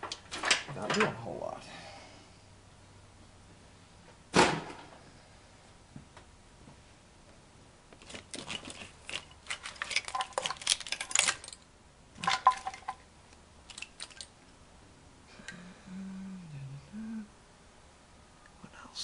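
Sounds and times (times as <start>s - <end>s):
plastic connectors clicking and rattling: 8.0s - 13.0s, 13.7s - 14.3s.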